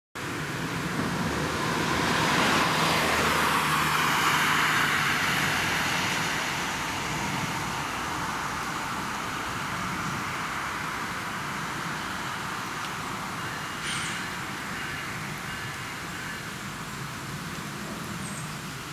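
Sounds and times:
tyres hissing on wet road: 0.2s - 18.9s.

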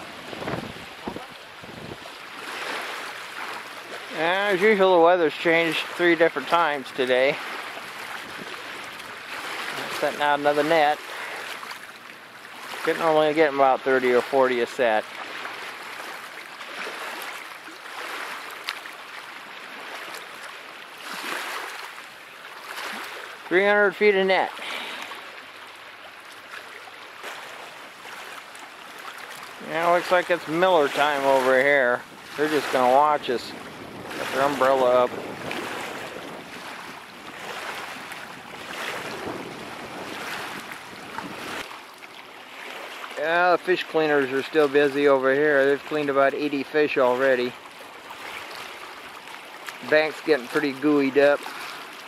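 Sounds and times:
wind blowing over microphone: 0.0s - 2.2s, 31.0s - 41.7s
small waves lapping: 0.0s - 52.0s.

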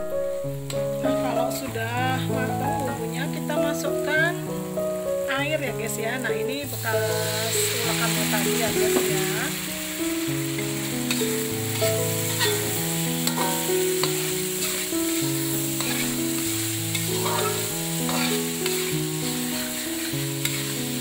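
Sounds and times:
slow background melody: 0.0s - 21.0s
spice paste sizzling in oil: 0.0s - 21.0s
metal spatula stirring in wok: 7.6s - 21.0s.

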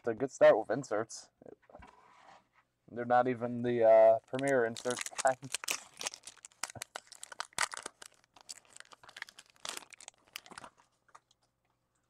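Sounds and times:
card pack wrapper crinkling: 4.2s - 11.2s.

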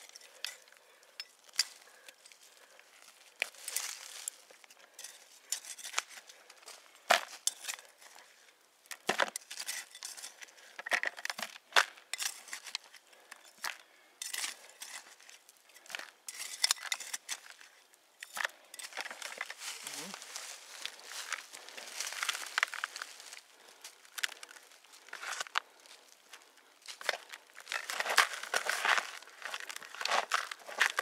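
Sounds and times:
trowel scraping stony soil: 3.0s - 8.3s, 9.0s - 10.7s, 12.0s - 23.5s, 26.9s - 31.0s.

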